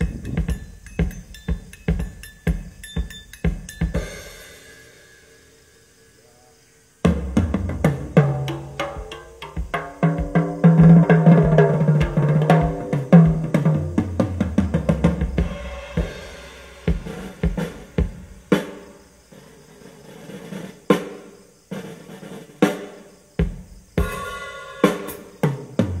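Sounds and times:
bass drum kicks: 0.0s - 4.1s, 7.1s - 18.5s
cymbal crashes: 3.9s - 5.7s, 15.4s - 18.8s, 24.0s - 25.4s
tom fills with booming low notes: 12.6s - 18.6s.

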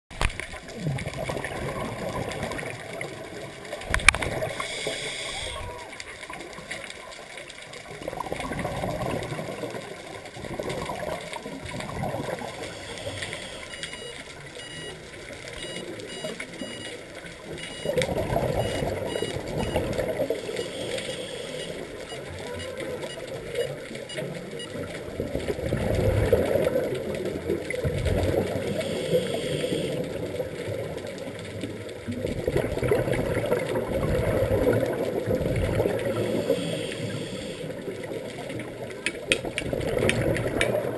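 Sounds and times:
diver breathing through regulator: 4.6s - 5.6s
dive computer beeping rapidly: 12.2s - 24.8s, 28.7s - 30.0s, 35.9s - 37.7s.

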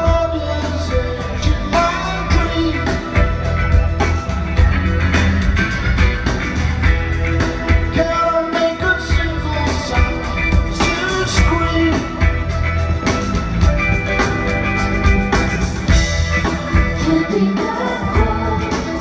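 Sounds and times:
man singing lead vocal: 0.0s - 3.8s, 7.7s - 12.6s, 17.0s - 19.0s
live rock band: 0.0s - 19.0s.

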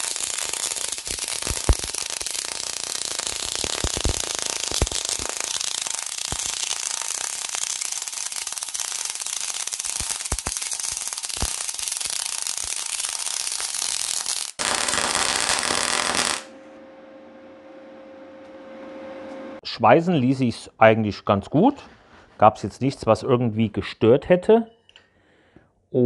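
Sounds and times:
welding arc crackling: 0.0s - 16.5s.

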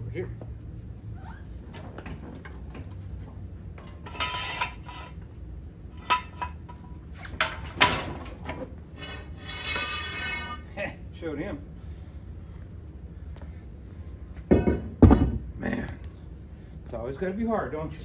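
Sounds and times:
steady low hum: 0.0s - 18.0s
metal clanking: 3.7s - 5.2s, 5.9s - 10.8s
grinding metal scrape: 3.8s - 5.2s, 5.9s - 8.2s, 8.8s - 10.8s.

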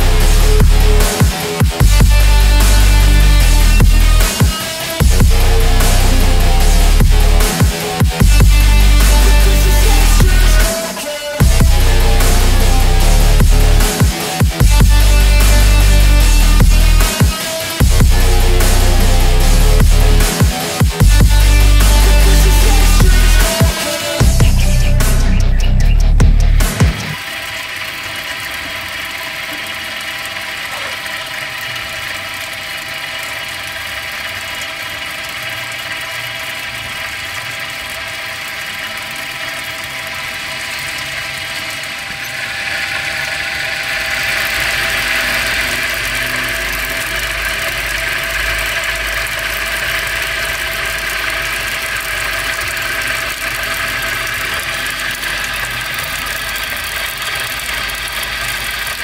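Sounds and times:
electric motor whine: 0.0s - 59.0s
water jet hissing and splashing: 26.7s - 59.0s.

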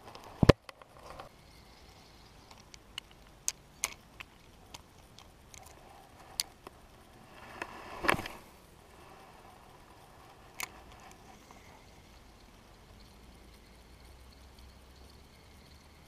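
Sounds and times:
brief rustle: 7.3s - 8.6s.

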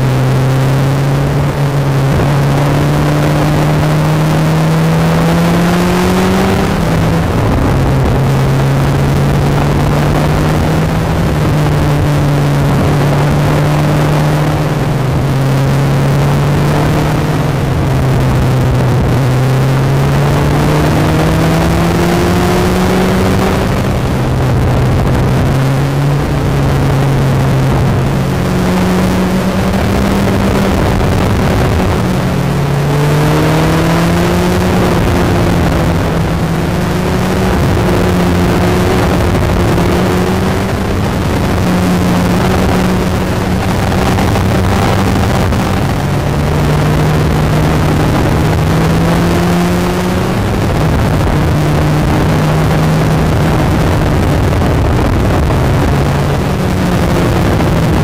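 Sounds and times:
motorcycle engine revving: 0.0s - 58.0s
wind rushing: 0.7s - 58.0s.

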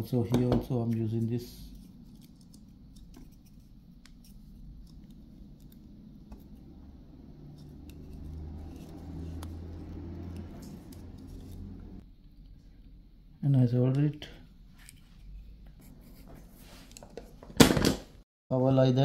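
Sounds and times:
low hum: 1.5s - 13.4s.

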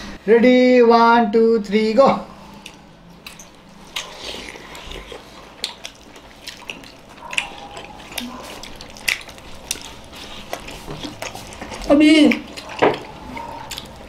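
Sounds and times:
wet chewing and mouth smacks: 2.4s - 14.0s.

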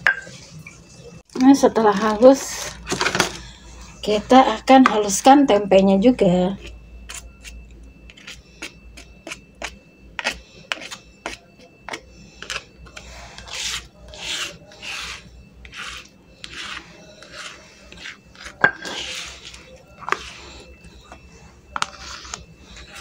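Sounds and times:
spatula scraping stone mortar: 6.6s - 21.2s, 21.8s - 23.0s.

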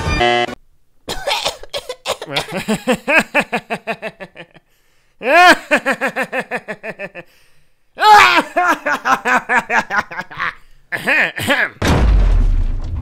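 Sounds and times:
man laughing exaggeratedly: 1.1s - 7.3s, 8.0s - 11.8s.

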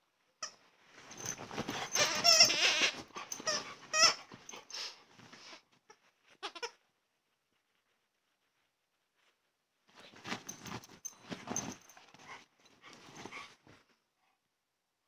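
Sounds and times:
dog whining: 1.2s - 4.9s.

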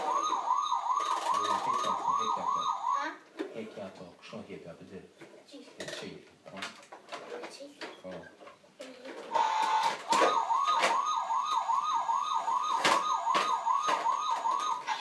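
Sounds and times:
toy siren yelping: 0.0s - 3.2s, 9.3s - 15.0s.

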